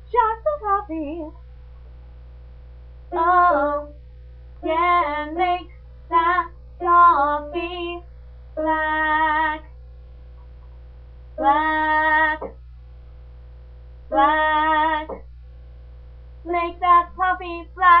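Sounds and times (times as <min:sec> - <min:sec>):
woman singing: 0:00.0 - 0:01.4, 0:03.1 - 0:04.0, 0:04.6 - 0:08.0, 0:08.6 - 0:09.7, 0:11.4 - 0:12.6, 0:14.1 - 0:15.2, 0:16.5 - 0:18.0
steady low hum: 0:00.0 - 0:18.0.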